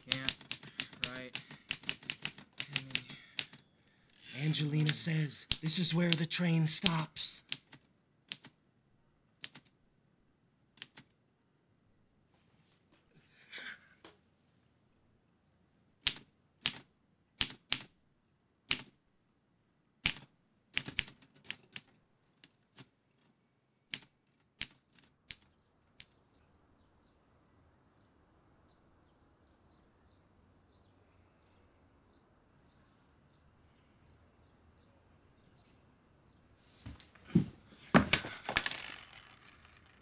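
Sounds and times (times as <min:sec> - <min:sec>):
typewriter keys clacking: 0:00.0 - 0:03.6.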